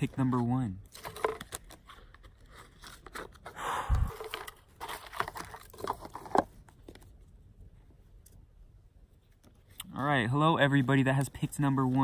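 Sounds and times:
cards shuffling and rustling: 0:00.0 - 0:07.3.

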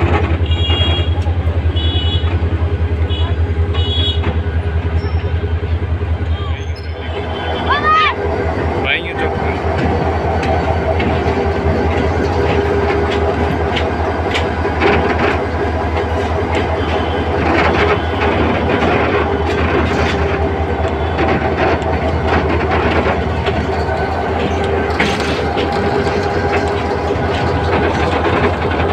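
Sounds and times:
locomotive engine drone: 0:00.0 - 0:28.9
wheels clacking on rails: 0:00.0 - 0:28.9.

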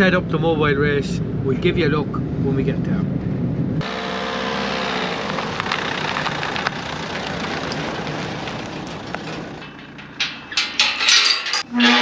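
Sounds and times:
van road noise: 0:00.0 - 0:11.7
vehicle engine revving: 0:03.8 - 0:09.5.

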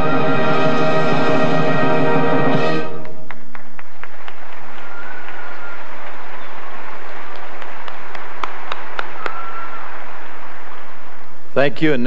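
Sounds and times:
orchestra music: 0:00.0 - 0:03.3
audience applauding: 0:02.9 - 0:10.7
individual claps: 0:03.0 - 0:09.4.

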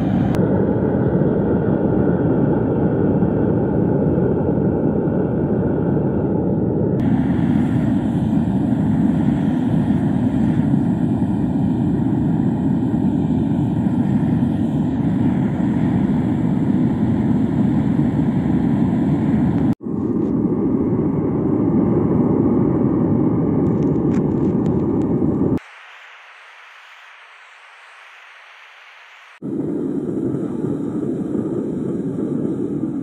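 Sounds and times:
gas burner flame roaring: 0:00.0 - 0:25.6, 0:29.4 - 0:33.0.

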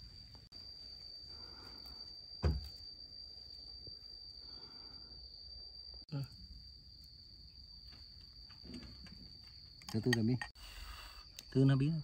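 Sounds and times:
insects trilling: 0:00.0 - 0:12.0
dull thump: 0:02.4 - 0:02.8.

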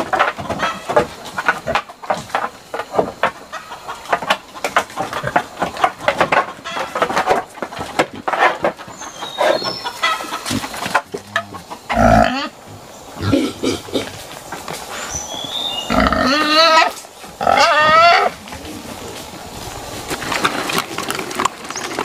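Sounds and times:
boars knocking on wooden slats: 0:00.0 - 0:12.1
chickens clucking: 0:00.0 - 0:22.0
boars grunting: 0:09.0 - 0:15.2, 0:15.8 - 0:19.2
boar deep call: 0:11.1 - 0:12.6.

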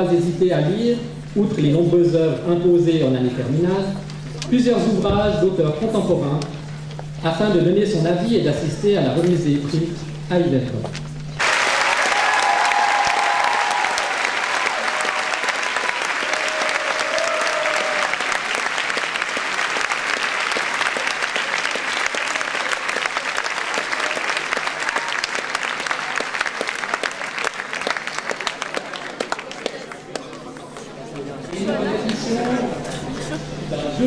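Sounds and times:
audience applauding: 0:11.4 - 0:31.3.

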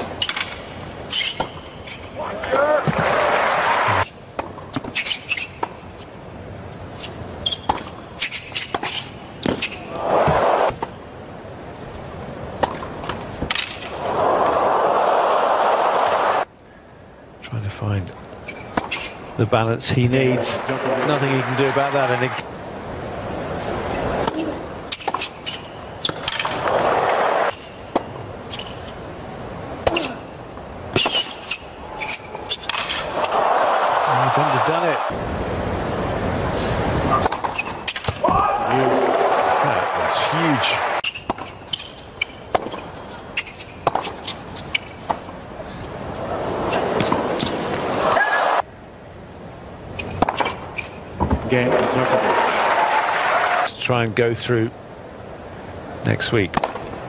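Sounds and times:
crowd applause and cheering: 0:02.8 - 0:04.0, 0:14.0 - 0:16.4, 0:20.4 - 0:22.4, 0:33.1 - 0:35.2, 0:38.3 - 0:41.0, 0:47.8 - 0:48.6, 0:51.5 - 0:53.7
racket hitting tennis ball: 0:07.6 - 0:10.9, 0:30.9 - 0:31.6, 0:37.1 - 0:38.3, 0:41.0 - 0:45.4, 0:50.0 - 0:50.6, 0:56.6 - 0:56.9
tennis ball strikes: 0:43.8 - 0:45.3, 0:56.6 - 0:57.0.

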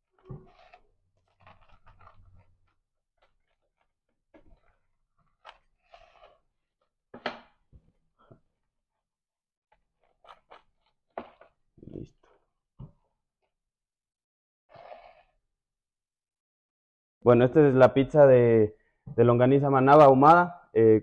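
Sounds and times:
pizza cutter crackling through crust: 0:00.0 - 0:06.7.

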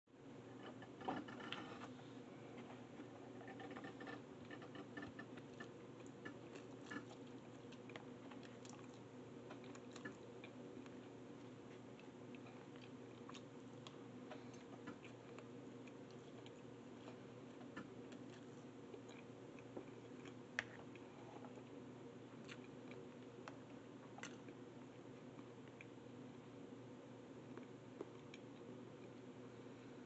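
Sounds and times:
low room hum: 0:00.1 - 0:30.0.

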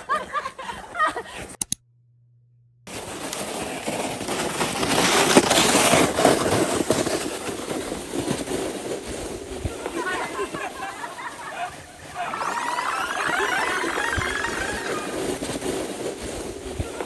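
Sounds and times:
people laughing: 0:00.0 - 0:01.5, 0:09.7 - 0:15.4
sled scraping over snow: 0:02.9 - 0:17.0.

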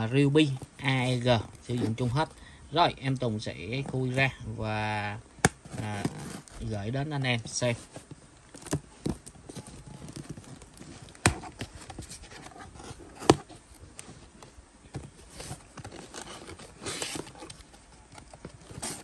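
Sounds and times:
cardboard box being opened: 0:05.6 - 0:06.7, 0:07.8 - 0:19.0.

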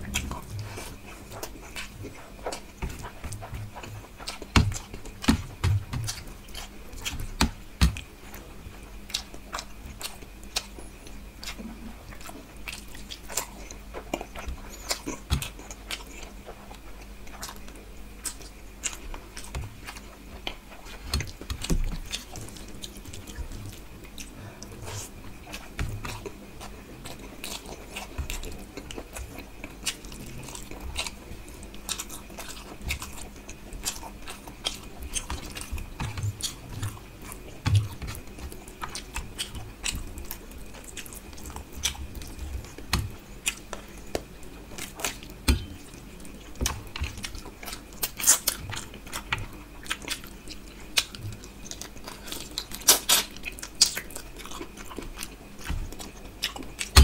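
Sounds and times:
chewing and wet mouth clicks: 0:46.7 - 0:57.0.

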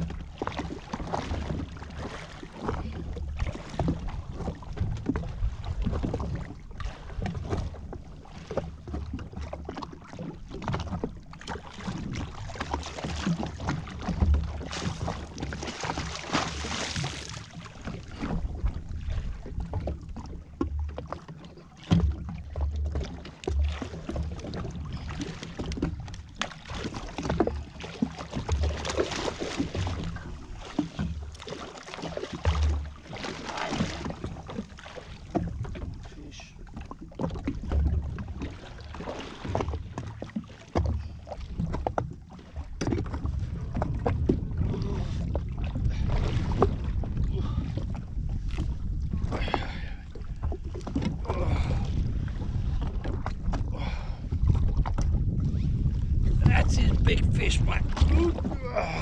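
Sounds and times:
water slapping against hull: 0:00.0 - 0:59.0
wind buffeting microphone: 0:42.9 - 0:59.0.

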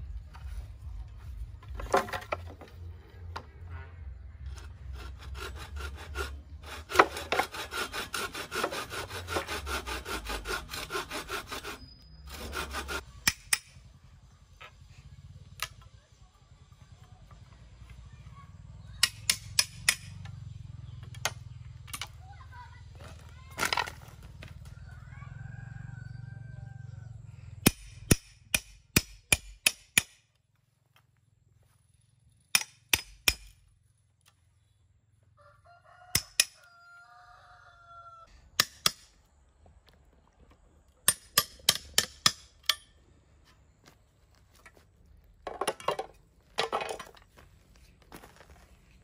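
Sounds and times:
rough scraping: 0:00.0 - 0:13.2, 0:43.2 - 0:49.0
sharp woodworking tool strikes: 0:05.0 - 0:13.8, 0:18.9 - 0:20.3, 0:27.6 - 0:30.3, 0:32.5 - 0:33.6, 0:36.1 - 0:36.6, 0:38.5 - 0:39.2, 0:41.0 - 0:43.0
rooster crowing: 0:24.6 - 0:27.3, 0:35.4 - 0:38.3.

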